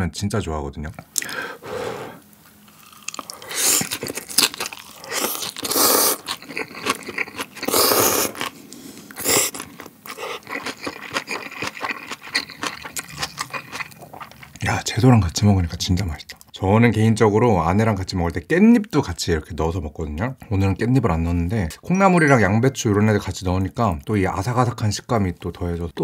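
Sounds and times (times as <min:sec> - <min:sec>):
crisp crunching of vegetables: 0:02.7 - 0:14.6
noodle slurping: 0:04.8 - 0:11.2.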